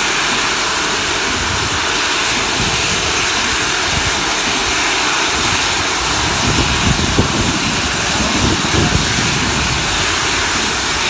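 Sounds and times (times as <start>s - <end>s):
steam hissing from safety valves: 0.0s - 11.0s
low rumbling: 0.6s - 11.0s.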